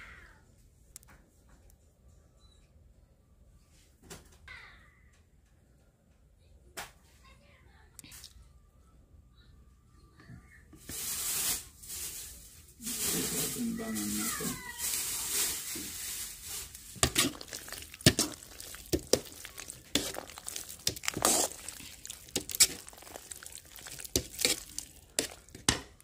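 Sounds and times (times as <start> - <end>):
spoon stirring macaroni: 15.7 - 26.0
spoon scraping a bowl: 17.0 - 25.8.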